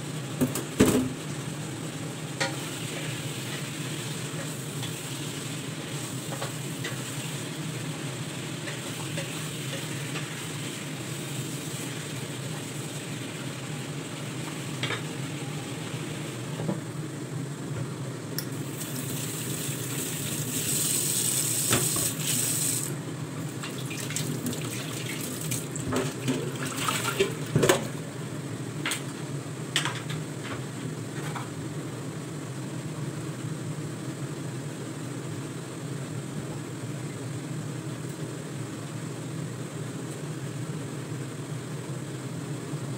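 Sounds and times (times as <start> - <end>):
steady low hum: 0.0 - 20.8.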